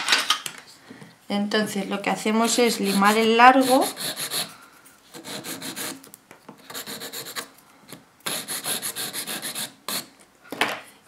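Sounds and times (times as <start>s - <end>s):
nail file rubbing a fingernail: 2.4s - 4.5s, 6.6s - 7.5s, 8.3s - 10.1s.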